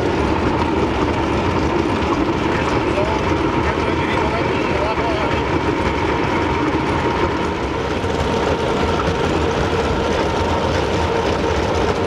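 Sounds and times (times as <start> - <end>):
machinery rumble: 0.0 - 12.0.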